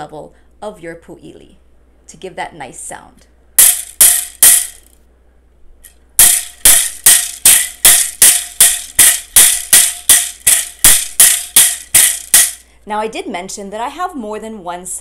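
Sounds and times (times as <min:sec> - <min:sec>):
bamboo sticks clacking: 0:06.2 - 0:12.6.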